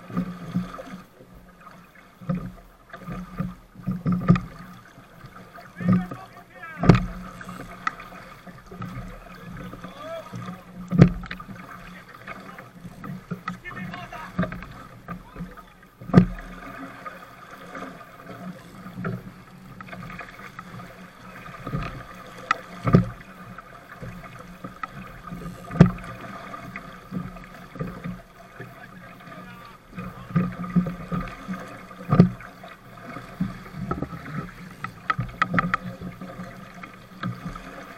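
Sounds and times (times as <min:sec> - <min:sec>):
water rushing along hull: 0:00.0 - 0:37.9
sharp slaps on hull: 0:05.8 - 0:11.5, 0:12.2 - 0:16.5, 0:21.6 - 0:23.3, 0:24.0 - 0:28.2, 0:30.0 - 0:32.4, 0:33.4 - 0:36.2.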